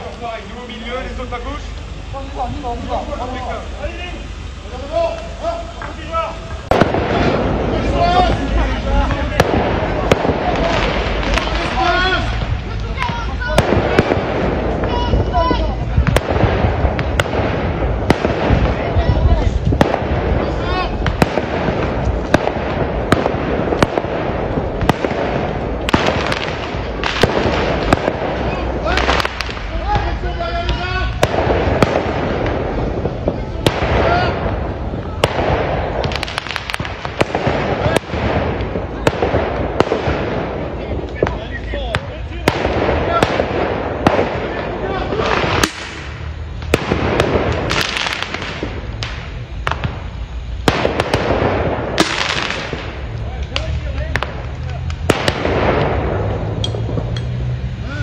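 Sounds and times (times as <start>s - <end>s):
continuous hiss: 0.0s - 58.0s
fireworks bangs: 0.0s - 58.0s
steady rushing noise: 0.0s - 58.0s.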